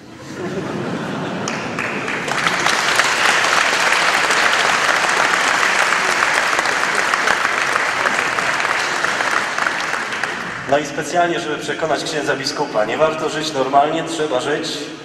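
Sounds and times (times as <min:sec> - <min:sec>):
congregation applauding: 0:01.0 - 0:11.1.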